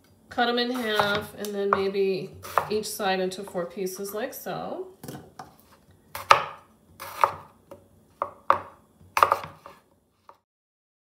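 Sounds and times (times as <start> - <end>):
knife knocking on cutting board: 8.2 - 9.6.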